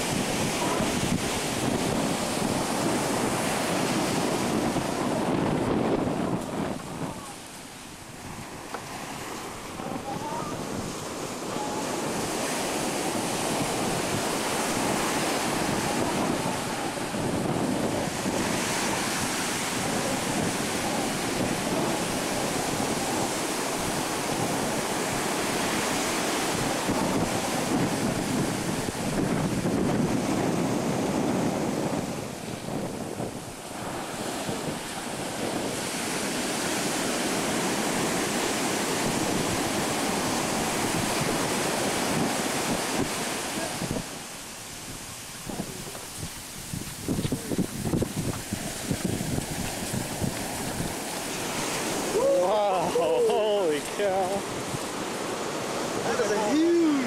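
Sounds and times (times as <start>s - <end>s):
ocean surf breaking on beach: 0.0s - 57.0s
wind on microphone: 0.0s - 57.0s.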